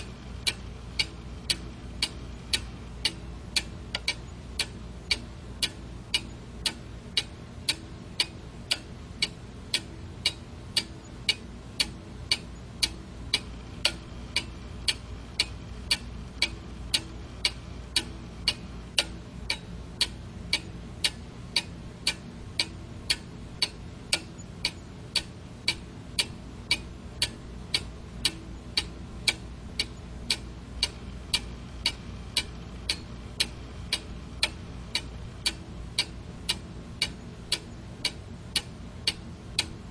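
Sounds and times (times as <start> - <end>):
clock ticking: 0.0 - 39.8
faint low hum: 0.0 - 39.9.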